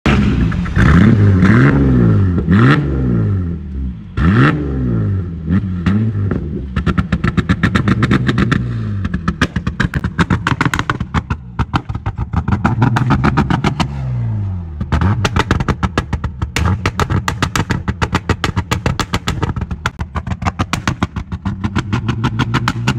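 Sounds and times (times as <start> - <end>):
car engine revving: 0.1 - 22.9
exhaust pops and bangs: 5.8 - 14.0, 14.8 - 22.9.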